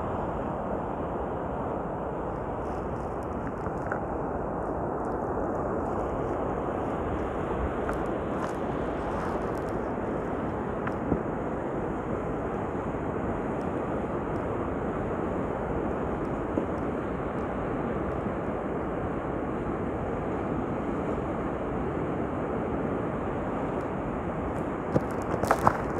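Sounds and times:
wind on microphone: 0:00.0 - 0:25.9.

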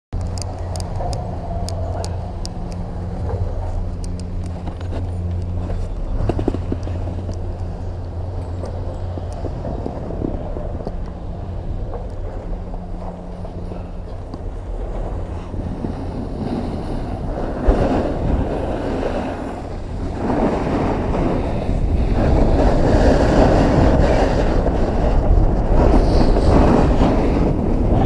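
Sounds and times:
snowboard scraping over snow: 0:09.0 - 0:28.0.

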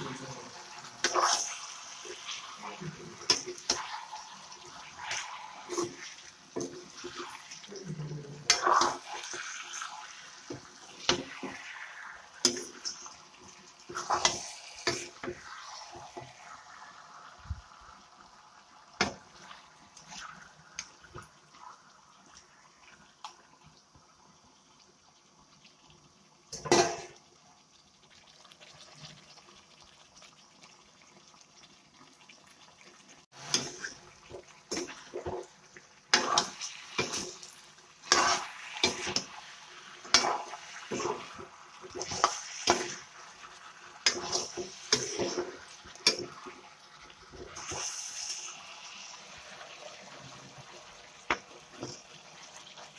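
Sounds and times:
metal spatula scraping a wok: 0:33.4 - 0:34.0, 0:36.1 - 0:39.4, 0:41.9 - 0:43.0, 0:44.0 - 0:46.5.

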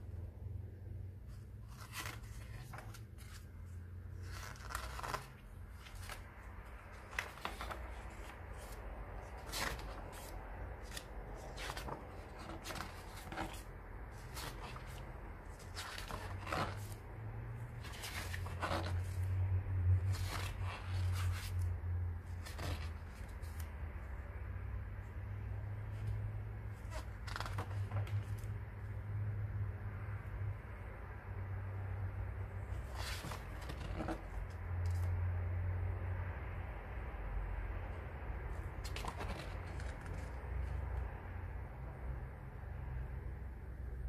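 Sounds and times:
low steady hum: 0:00.0 - 0:44.0
pages turning: 0:01.3 - 0:17.0, 0:17.8 - 0:23.7, 0:25.9 - 0:28.5, 0:32.7 - 0:35.2, 0:38.5 - 0:40.8.

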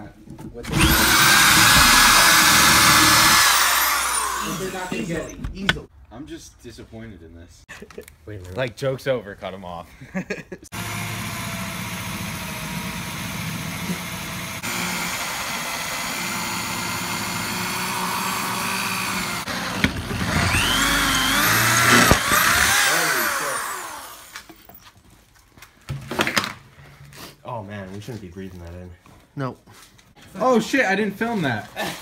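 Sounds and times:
electric drill running under load: 0:00.7 - 0:05.3, 0:10.7 - 0:24.8
drill bit screeching in metal: 0:00.7 - 0:05.4, 0:20.2 - 0:24.8.

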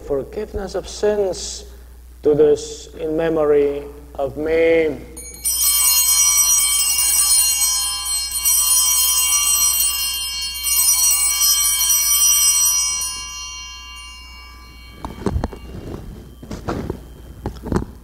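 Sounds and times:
altar bells ringing: 0:05.0 - 0:18.0.

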